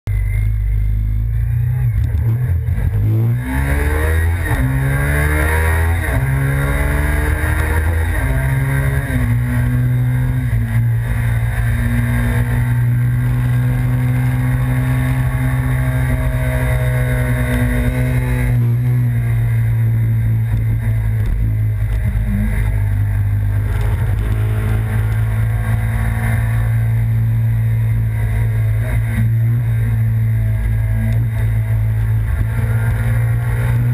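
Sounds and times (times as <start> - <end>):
motorcycle engine accelerating: 0.1 - 33.9.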